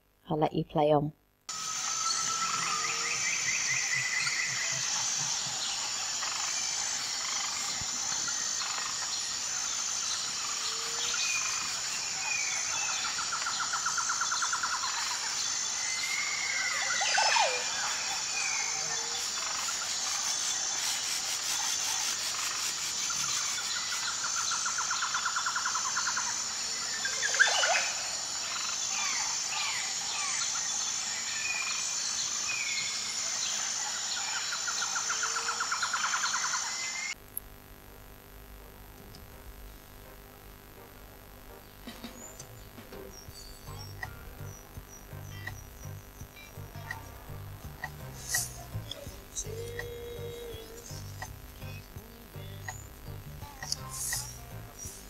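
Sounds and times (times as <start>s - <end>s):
high insect chorus: 1.5s - 37.2s, 41.9s - 55.0s
buzzing trill: 38.0s - 55.0s.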